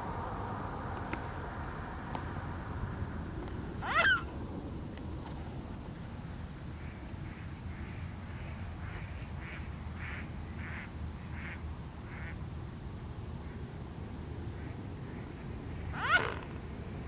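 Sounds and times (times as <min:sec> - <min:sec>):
swan calling: 0:03.8 - 0:04.3, 0:16.0 - 0:16.5.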